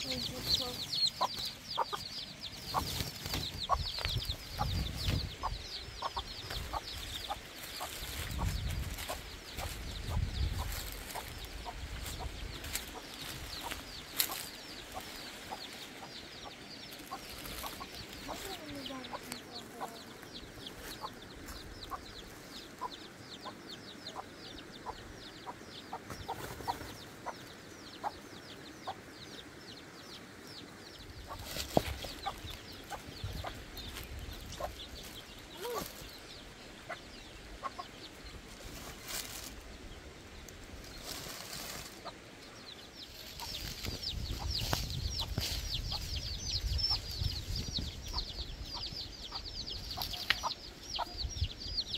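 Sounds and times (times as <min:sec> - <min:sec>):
birds clucking and chirping: 0:00.0 - 0:51.9
footsteps on dry leaves: 0:02.6 - 0:05.4, 0:06.3 - 0:16.0, 0:16.9 - 0:19.5, 0:31.4 - 0:36.2, 0:38.5 - 0:39.7, 0:40.8 - 0:42.2, 0:43.1 - 0:46.2.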